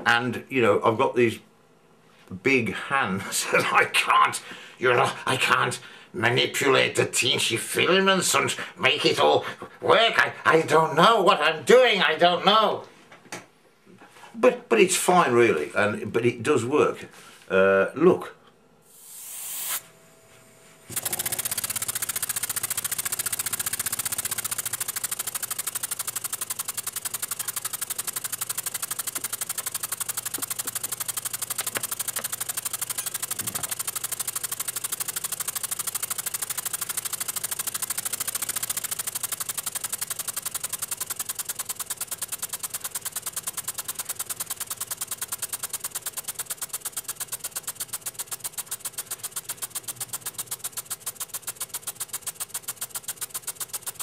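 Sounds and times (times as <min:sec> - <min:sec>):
model steam engine chuffing: 0:20.9 - 0:54.0.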